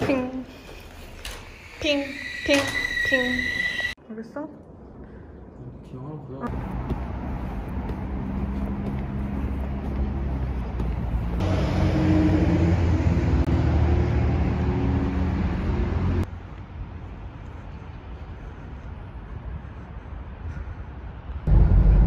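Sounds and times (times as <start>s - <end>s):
city road traffic: 0.0s - 22.0s
vehicle engine humming: 6.5s - 22.0s.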